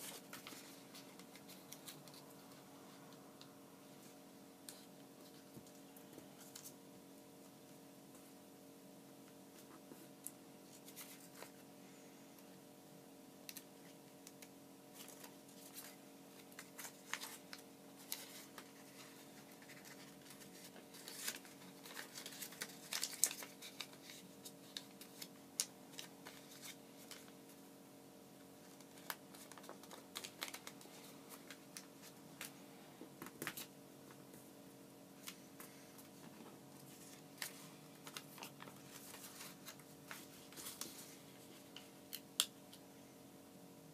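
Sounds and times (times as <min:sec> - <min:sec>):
paper rustling and crackling: 0:00.0 - 0:03.2, 0:09.5 - 0:11.7, 0:13.5 - 0:27.6, 0:28.6 - 0:32.6, 0:35.2 - 0:42.5.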